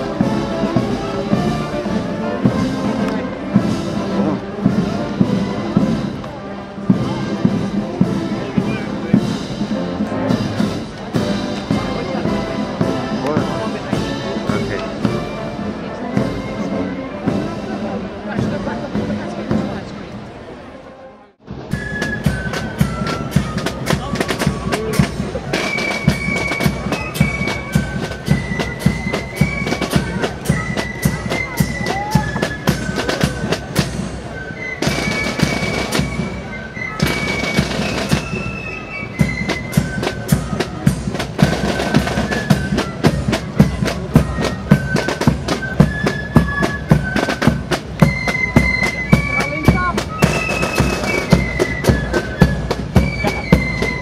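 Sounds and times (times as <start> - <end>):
fast drumming: 21.7 - 34.2, 39.2 - 54.0.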